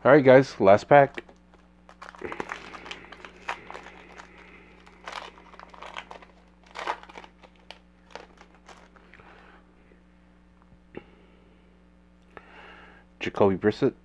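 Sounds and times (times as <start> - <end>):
foil wrapper crinkling and tearing: 1.0 - 9.2.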